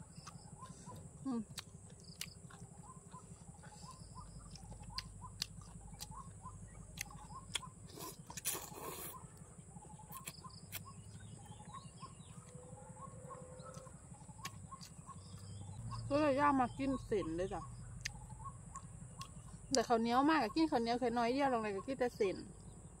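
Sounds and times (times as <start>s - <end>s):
bird chirping: 0.0s - 23.0s
mouth clicks: 0.1s - 9.2s
slurping noodles: 7.9s - 9.2s.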